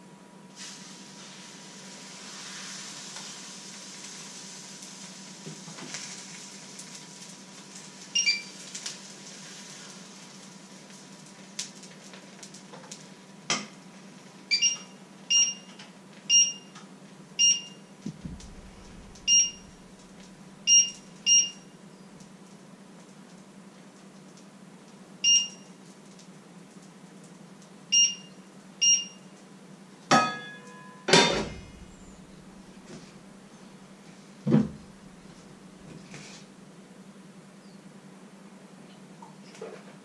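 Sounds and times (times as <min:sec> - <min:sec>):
batter sizzling in frying pan: 0:00.5 - 0:15.3
short high electronic beeps: 0:18.4 - 0:20.0, 0:20.7 - 0:21.6.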